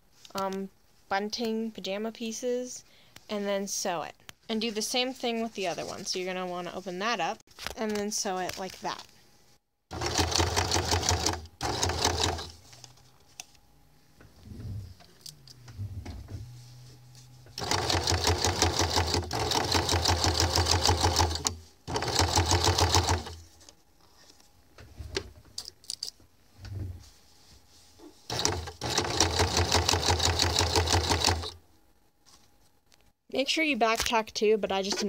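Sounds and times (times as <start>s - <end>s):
sewing machine stitching: 9.9s - 12.6s, 17.5s - 23.4s, 28.3s - 31.6s.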